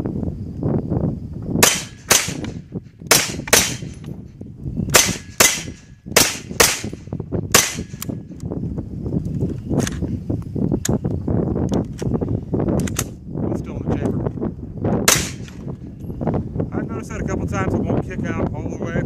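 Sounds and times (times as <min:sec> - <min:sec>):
wind buffeting microphone: 0:00.0 - 0:19.0
pistol shots: 0:01.6 - 0:04.0, 0:04.9 - 0:08.1, 0:15.0 - 0:15.6.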